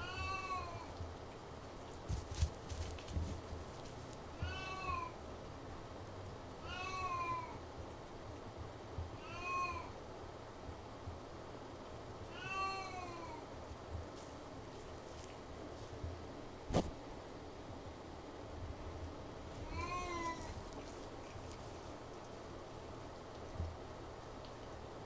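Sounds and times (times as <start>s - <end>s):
cat meowing: 0.0s - 0.9s, 4.4s - 5.1s, 6.6s - 7.6s, 9.2s - 9.9s, 12.3s - 13.4s, 19.6s - 20.6s.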